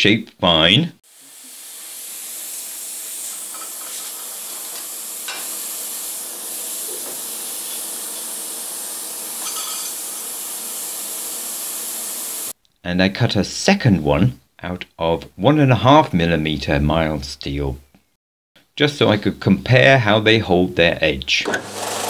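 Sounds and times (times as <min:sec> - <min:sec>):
air hissing: 0:01.1 - 0:12.6
metal pieces clinking: 0:09.4 - 0:10.0.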